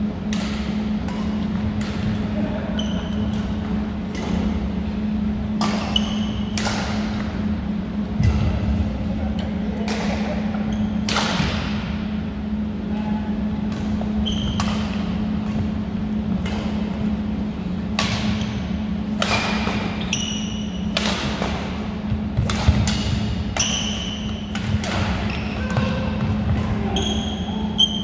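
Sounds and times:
steady low hum: 0:00.0 - 0:28.0
rackets striking shuttlecock: 0:00.2 - 0:02.2, 0:05.5 - 0:07.5, 0:09.8 - 0:12.0, 0:13.6 - 0:17.2, 0:17.8 - 0:26.8
shoes squeaking on wooden floor: 0:25.2 - 0:26.0.

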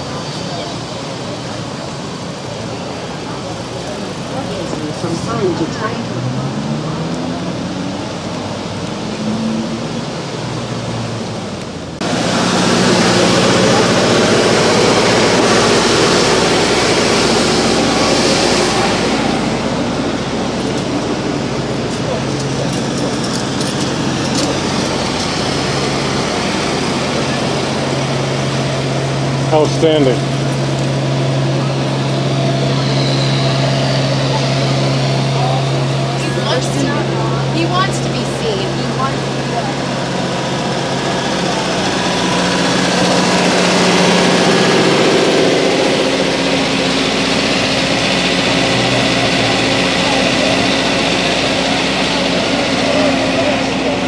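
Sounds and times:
street traffic rumble and hiss: 0:00.0 - 0:54.0
engine idling: 0:11.3 - 0:54.0.

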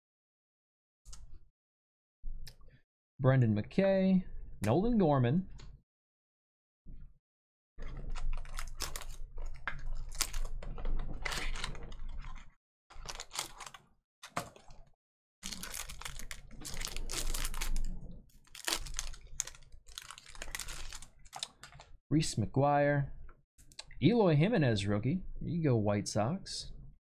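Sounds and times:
foil wrappers crinkling: 0:08.1 - 0:13.8, 0:15.4 - 0:21.9.

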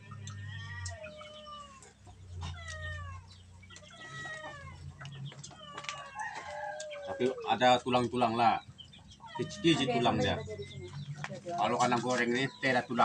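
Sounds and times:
cat meowing: 0:00.8 - 0:04.9, 0:09.2 - 0:10.4.

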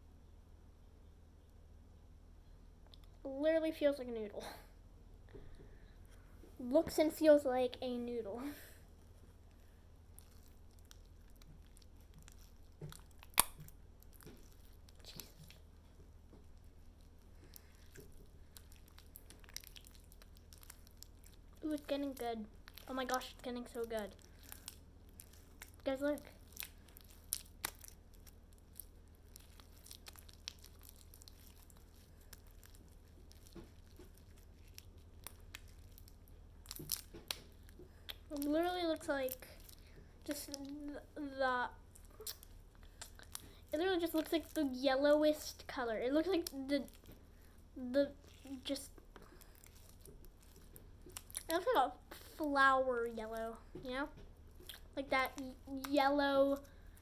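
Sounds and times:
slime sticky crackles and squelches: 0:06.5 - 0:57.0.

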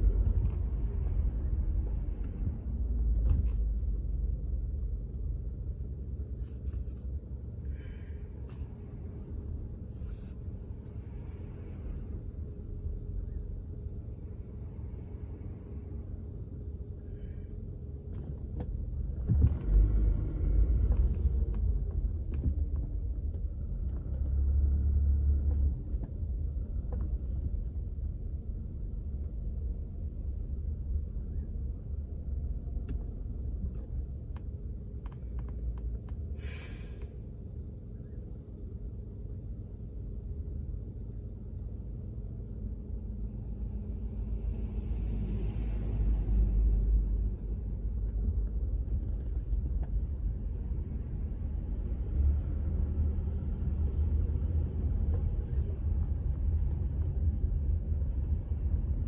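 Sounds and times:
car engine rumble and road noise: 0:00.0 - 0:59.0
short hiss: 0:36.4 - 0:37.2.

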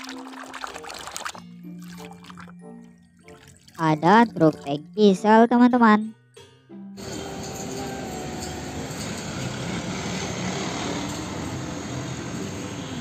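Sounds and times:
traffic: 0:07.0 - 0:13.0
truck engine: 0:07.0 - 0:13.0
tyres hissing on road: 0:07.0 - 0:13.0.

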